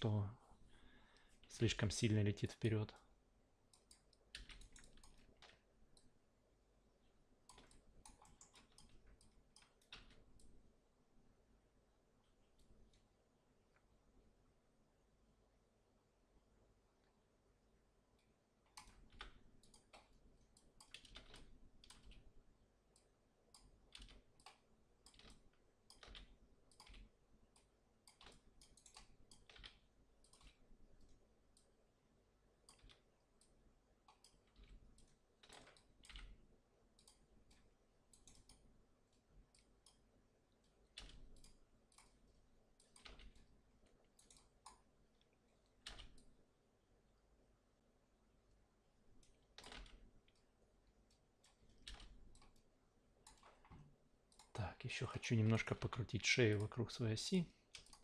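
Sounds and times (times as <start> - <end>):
mouse and keyboard clicking: 3.7 - 6.1, 7.5 - 10.5, 18.7 - 22.2, 23.0 - 31.7, 32.6 - 36.4, 37.0 - 38.6, 40.6 - 43.5, 44.1 - 44.8, 45.8 - 46.3, 49.2 - 50.5, 51.1 - 54.6, 57.7 - 58.0.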